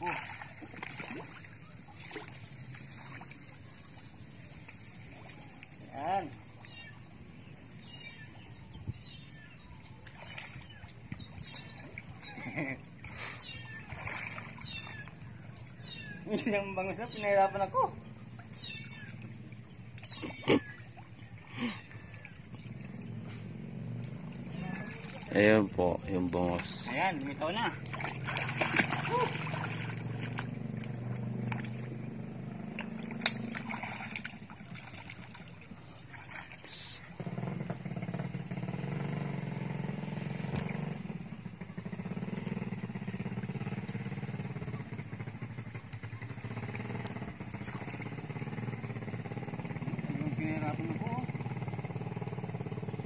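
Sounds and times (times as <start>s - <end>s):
motor droning: 18.1s - 25.3s, 26.7s - 36.1s.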